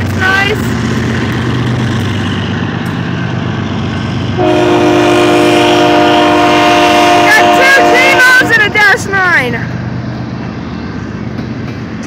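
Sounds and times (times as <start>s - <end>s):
diesel freight train passing: 0.0s - 12.0s
locomotive air horn chord: 4.4s - 8.8s.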